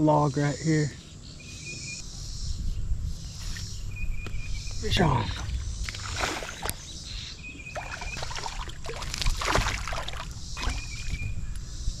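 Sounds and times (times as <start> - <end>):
steady low rumble: 2.0 - 7.7
water splashing against hull: 5.3 - 6.9, 7.5 - 11.4.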